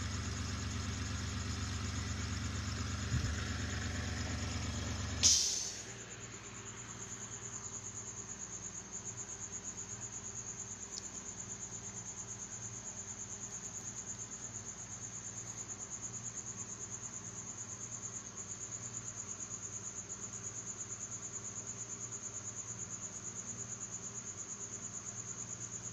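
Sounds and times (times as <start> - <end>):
insect trilling: 0.0 - 17.2
faint electrical hum: 1.0 - 25.9.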